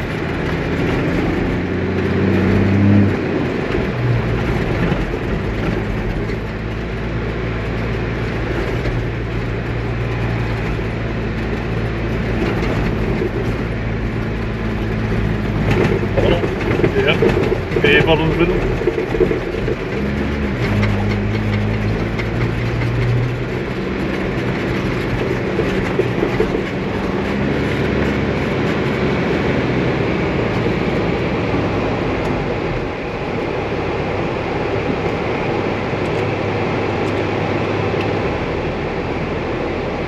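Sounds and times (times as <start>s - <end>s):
tyres rumbling on sand: 0.0s - 39.6s
car engine driving: 0.0s - 40.0s.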